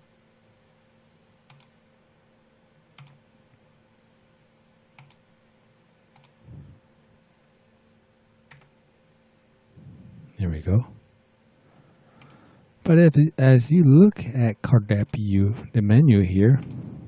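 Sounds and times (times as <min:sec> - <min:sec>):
faint electrical hum: 0:00.0 - 0:17.0
computer mouse clicks: 0:01.4 - 0:01.8, 0:02.9 - 0:03.2, 0:04.9 - 0:05.2, 0:06.1 - 0:06.4, 0:08.5 - 0:08.8, 0:12.2 - 0:12.4.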